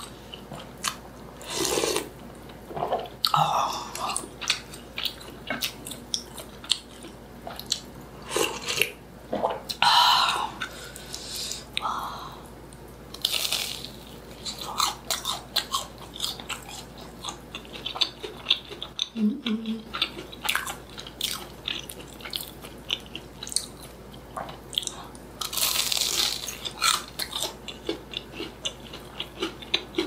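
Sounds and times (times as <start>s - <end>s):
crunchy bites and chewing: 13.1s - 19.1s, 20.0s - 30.0s.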